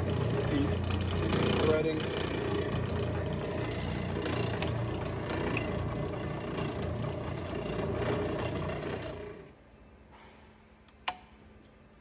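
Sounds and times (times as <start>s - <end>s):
lathe running: 0.0s - 9.5s.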